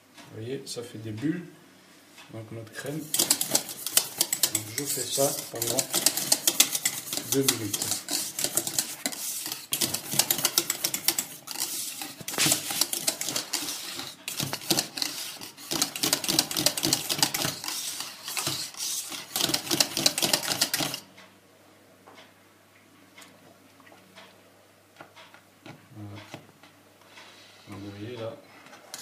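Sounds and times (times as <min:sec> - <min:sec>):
whisk rattling against metal pan: 0:03.0 - 0:21.1.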